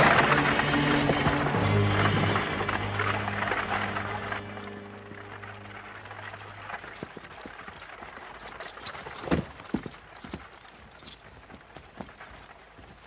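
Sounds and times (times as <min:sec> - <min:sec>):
horse hooves clopping: 0:00.0 - 0:13.0.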